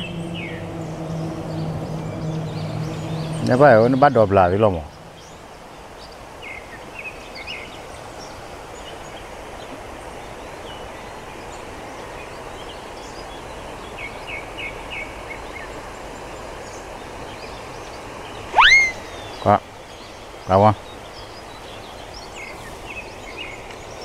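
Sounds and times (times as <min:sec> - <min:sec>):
outdoor background hiss: 0:00.0 - 0:24.0
songbirds chirping: 0:00.0 - 0:24.0.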